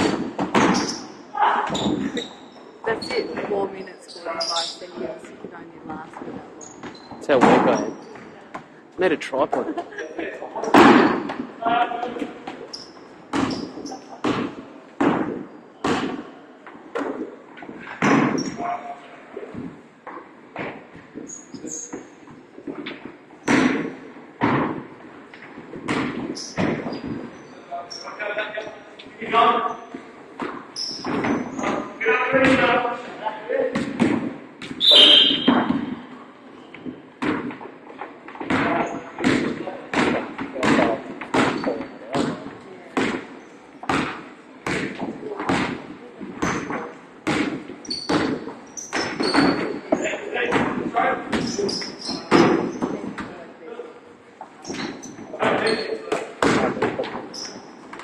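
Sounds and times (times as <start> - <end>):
shoes squeaking on court: 0.0 - 5.4, 6.1 - 9.1, 12.2 - 16.4, 17.6 - 18.7, 19.6 - 23.7, 25.3 - 28.8, 29.7 - 32.0, 40.8 - 42.6, 43.2 - 50.2, 51.3 - 53.2, 54.5 - 57.8
shoe squeak: 0.6 - 5.2, 6.2 - 8.3, 12.6 - 14.2, 18.3 - 18.9, 21.2 - 22.2, 26.3 - 28.2, 30.7 - 32.0, 34.8 - 37.1, 38.7 - 39.2, 41.4 - 42.2, 47.8 - 50.2, 51.4 - 53.0, 54.6 - 56.1, 57.3 - 57.8
players' voices: 1.3 - 12.7
basketball bouncing on wooden floor: 12.7 - 16.3, 30.4 - 32.7, 38.4 - 53.3.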